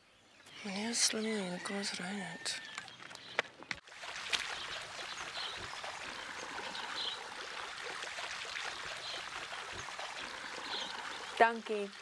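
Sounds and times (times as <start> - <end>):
water pouring from pipe: 3.8 - 11.4.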